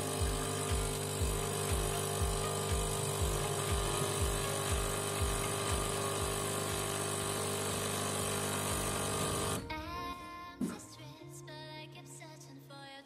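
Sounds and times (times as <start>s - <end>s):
espresso machine pump whirring: 0.0s - 9.6s.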